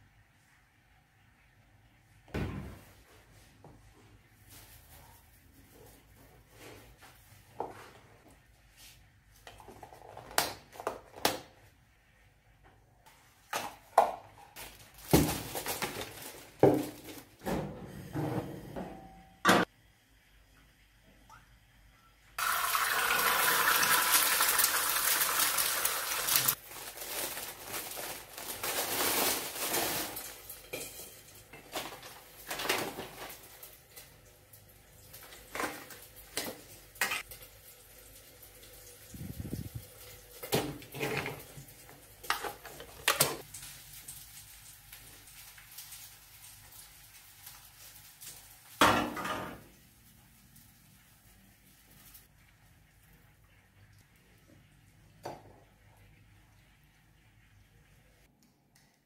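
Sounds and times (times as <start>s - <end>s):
egg sizzling in hot oil: 22.4s - 26.6s, 33.4s - 48.8s.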